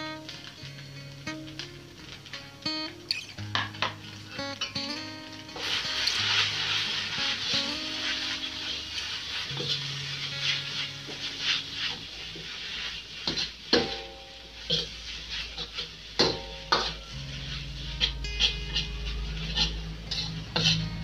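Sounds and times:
frying sizzle: 0.0 - 21.0
metal spatula scraping a wok: 5.5 - 21.0.

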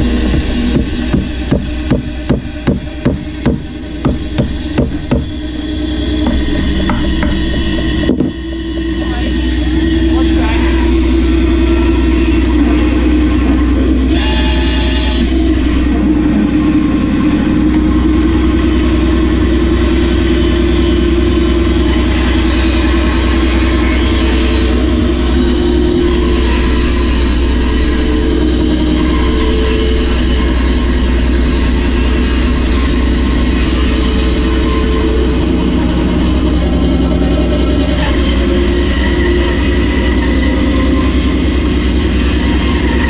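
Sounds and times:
bandsaw cutting wood: 0.0 - 11.4
steady high whine: 0.0 - 43.0.

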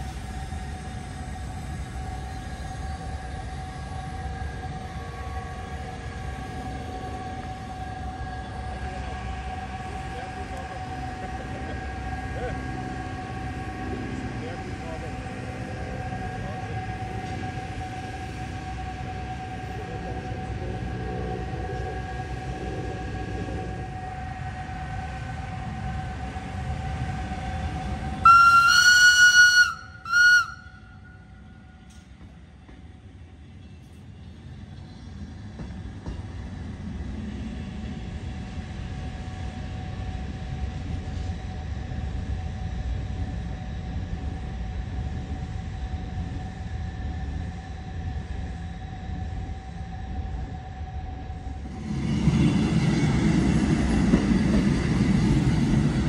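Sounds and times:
electric locomotive hum: 0.0 - 56.0
low rumble of train running: 0.0 - 56.0
high-pitched locomotive whistle: 15.6 - 32.1.

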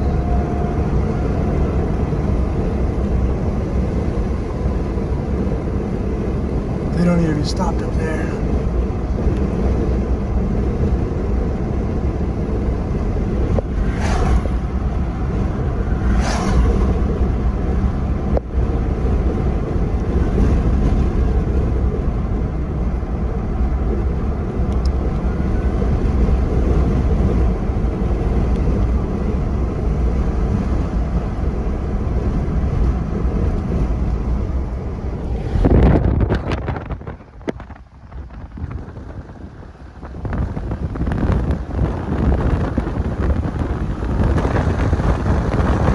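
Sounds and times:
car driving rumble: 0.0 - 45.9
brief whooshes: 13.7 - 14.8, 15.9 - 17.1.

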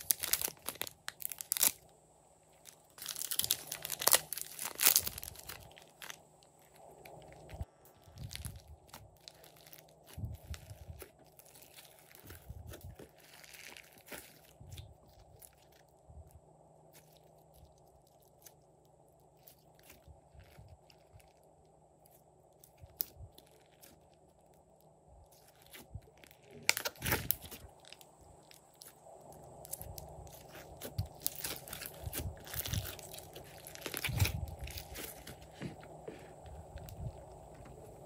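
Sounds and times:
slime squishing and popping: 3.0 - 15.7, 25.3 - 28.9, 29.6 - 35.7.

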